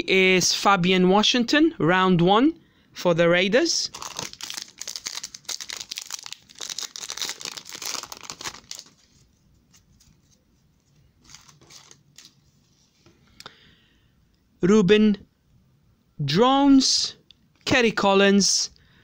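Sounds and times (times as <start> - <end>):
foil wrapper crinkling and tearing: 3.9 - 10.3, 11.2 - 12.4
cards rustling: 3.9 - 13.1.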